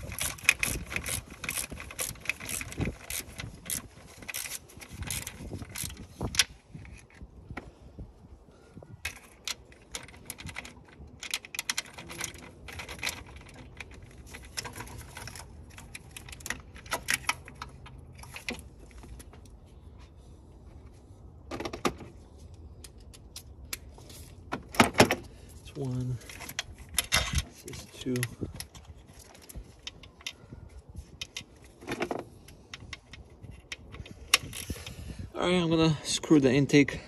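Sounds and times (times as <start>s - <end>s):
metal hand tools clicking and rattling: 0.0s - 7.1s.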